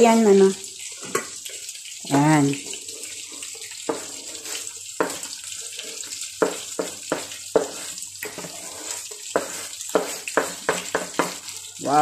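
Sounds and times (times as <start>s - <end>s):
oil frying: 0.0s - 12.0s
knife scraping chopping board: 3.8s - 11.4s.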